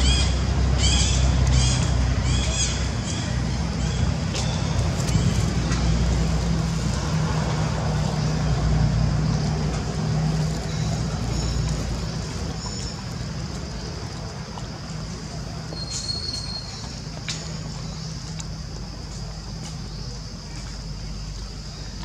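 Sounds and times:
motor engine humming: 0.0 - 15.9.

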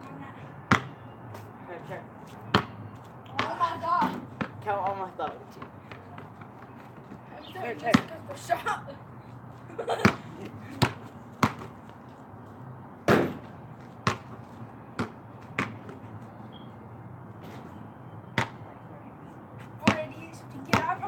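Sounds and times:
basketball bouncing on pavement: 0.7 - 1.4, 2.3 - 8.4, 9.9 - 16.7, 17.4 - 18.6, 19.6 - 21.0.

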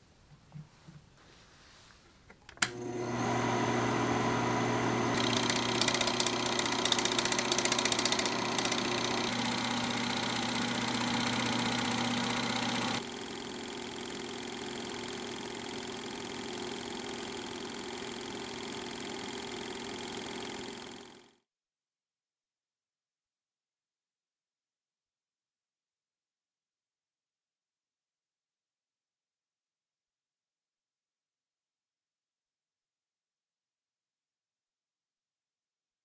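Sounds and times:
projector switch click: 2.5 - 2.9
film projector running: 2.6 - 21.4.

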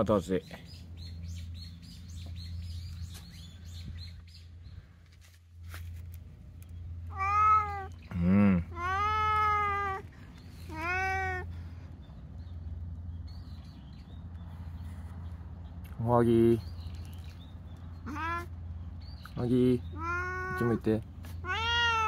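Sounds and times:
steady low hum: 0.0 - 21.5
cat meowing: 7.1 - 8.0, 8.7 - 10.0, 10.7 - 11.5, 18.0 - 18.5, 19.9 - 20.8, 21.4 - 22.0.

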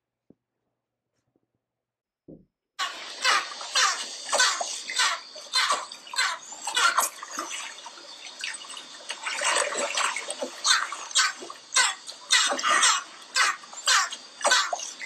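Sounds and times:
dolphin sound bursts underwater: 2.8 - 7.6
underwater water noise: 2.8 - 15.0.

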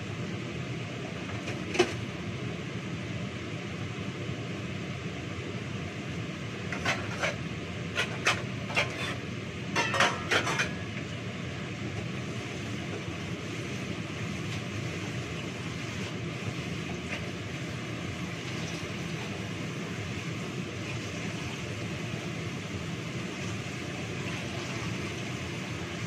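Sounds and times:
metal plates clinking: 9.8 - 10.8.

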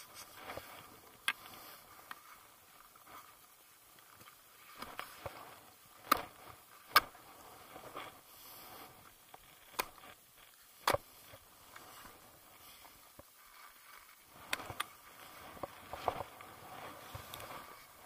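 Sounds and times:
sharp clicks and knocks of gear: 0.0 - 3.3, 3.9 - 8.2, 9.0 - 12.2, 12.8 - 17.9
clothing rustling: 0.0 - 18.0.

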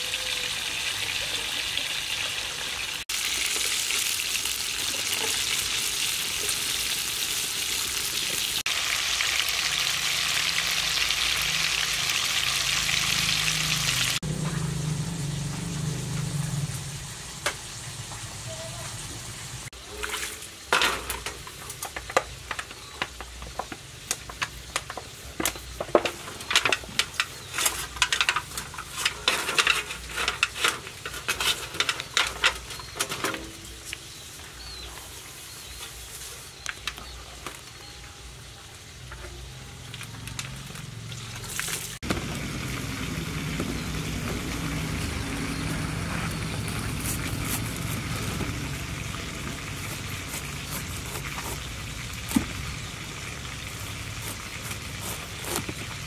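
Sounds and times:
metal wok scraping and clanking: 19.8 - 23.0, 24.2 - 34.3.

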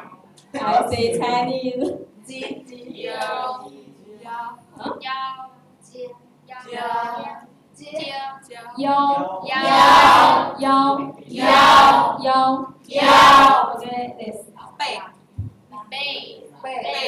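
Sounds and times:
woman and children singing: 6.6 - 8.1, 8.7 - 14.4.

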